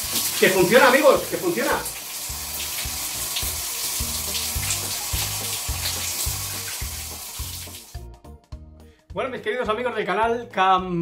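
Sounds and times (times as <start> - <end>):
shower spraying water: 0.0 - 8.0
music with bass beat: 4.0 - 8.8.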